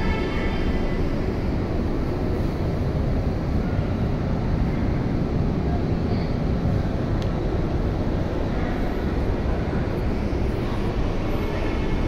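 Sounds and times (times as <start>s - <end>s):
train car low rumble: 0.0s - 12.0s
faint click: 7.2s - 7.4s.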